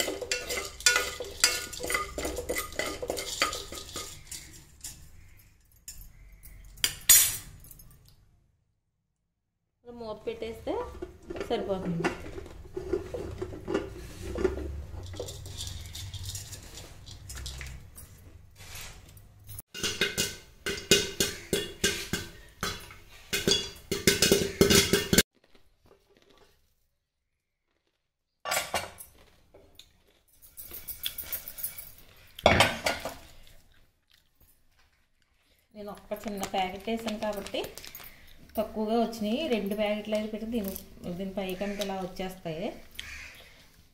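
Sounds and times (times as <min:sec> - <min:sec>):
metal lid clattering: 0:00.0 - 0:05.0, 0:19.7 - 0:25.2
popcorn popping in a metal pot: 0:00.0 - 0:05.0, 0:19.7 - 0:25.2.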